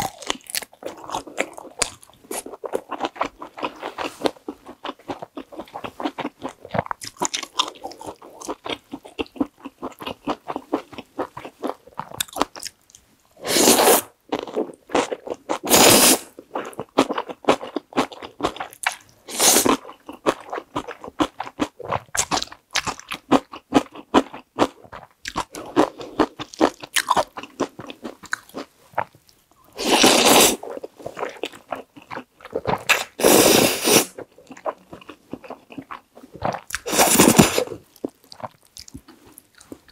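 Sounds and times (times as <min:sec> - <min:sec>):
crunchy chewing: 0:00.0 - 0:13.0, 0:14.3 - 0:33.3, 0:33.9 - 0:39.9
slurping noodles: 0:29.8 - 0:30.6, 0:33.0 - 0:34.2, 0:36.8 - 0:37.7.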